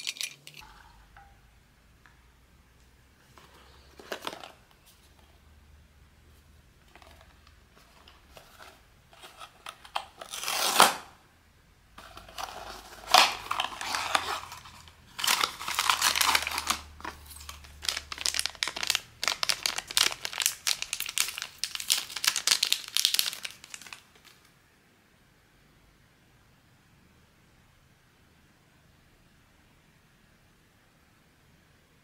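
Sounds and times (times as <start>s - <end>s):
wrapper crinkling and rustling: 3.4s - 5.3s, 6.8s - 11.0s, 12.0s - 24.5s
packaging tearing: 9.2s - 11.1s, 12.0s - 24.4s.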